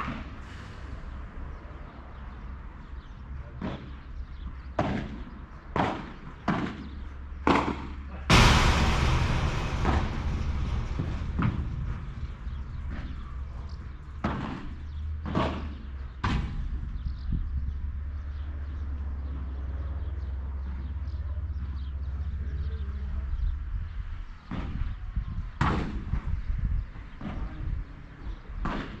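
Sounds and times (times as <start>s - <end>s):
steady low rumble: 8.3s - 15.3s.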